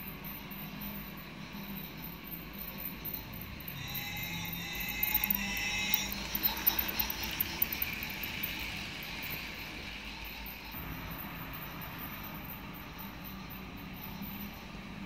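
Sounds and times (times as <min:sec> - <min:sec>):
wheels clicking on track: 0:02.4 - 0:14.8
toy train motor whir: 0:02.5 - 0:13.6
held electronic tone: 0:03.7 - 0:08.2.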